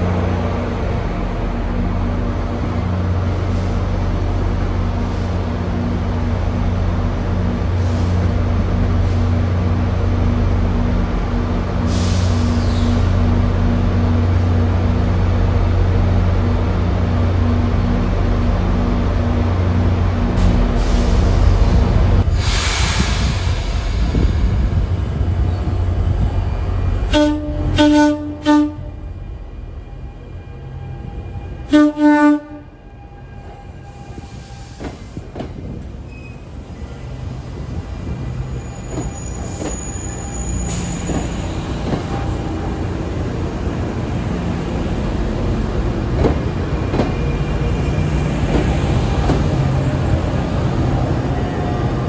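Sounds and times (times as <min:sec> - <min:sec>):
electric train rumbling past: 0:00.0 - 0:52.0
train horn short toots: 0:27.1 - 0:29.0, 0:31.6 - 0:34.2.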